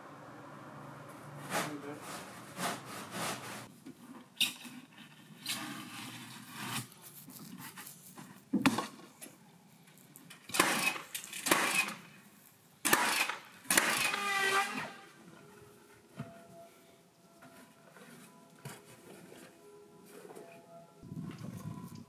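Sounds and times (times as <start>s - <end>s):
power tool bursts: 10.5s - 12.0s, 12.9s - 15.0s.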